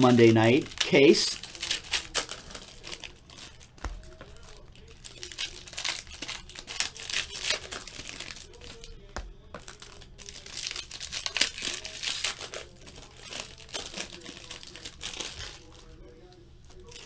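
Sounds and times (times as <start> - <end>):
foil wrappers tearing and crinkling: 0.0 - 17.0.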